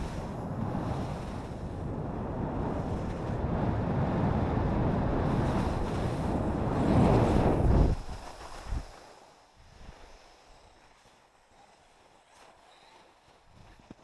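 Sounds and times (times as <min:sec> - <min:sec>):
skis sliding on snow: 0:00.0 - 0:01.9, 0:02.6 - 0:04.1, 0:04.8 - 0:14.0
wind buffeting microphone: 0:00.0 - 0:09.0.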